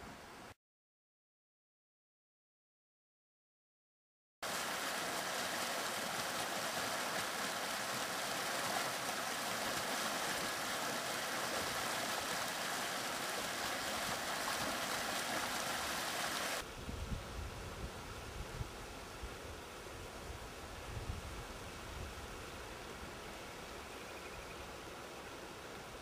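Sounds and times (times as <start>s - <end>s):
stream rushing over riffles: 4.4s - 16.7s.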